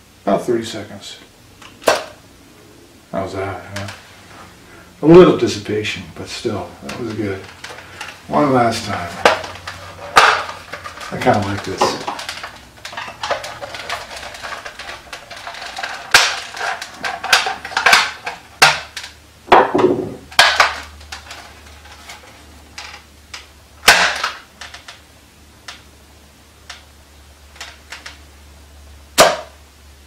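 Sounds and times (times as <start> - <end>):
toy blaster plastic clacks: 8.9 - 19.2, 20.4 - 22.2.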